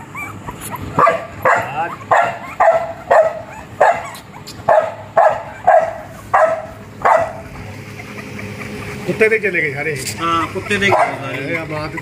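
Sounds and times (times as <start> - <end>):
puppy yelping: 0.0 - 9.2, 10.4 - 12.0.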